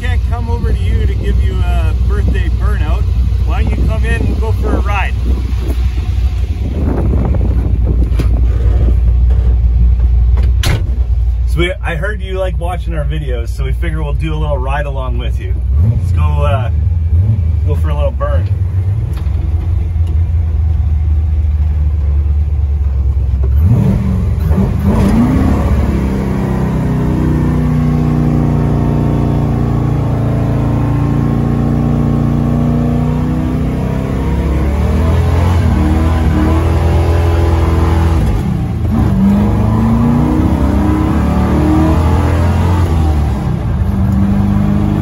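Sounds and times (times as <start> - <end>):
truck engine revving: 0.0 - 10.1, 15.4 - 22.4, 23.1 - 45.0
tires spinning: 23.5 - 45.0.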